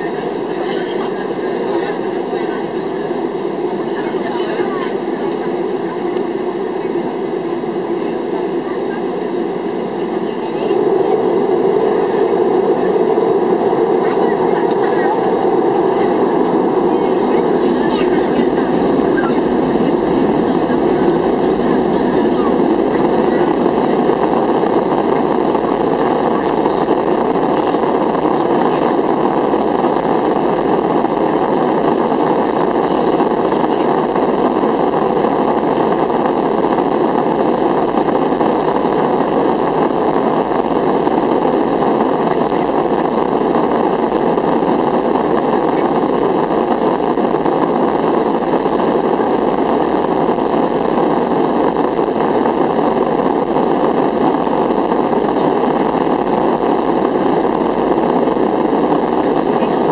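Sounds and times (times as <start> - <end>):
jet engines from inside cabin: 0.0 - 59.9.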